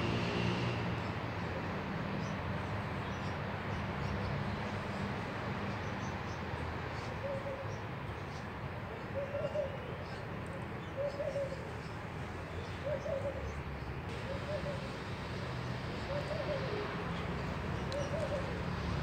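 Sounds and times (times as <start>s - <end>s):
dove cooing: 7.2s - 7.7s, 9.0s - 10.0s, 10.8s - 11.7s, 12.8s - 15.3s, 15.9s - 19.0s.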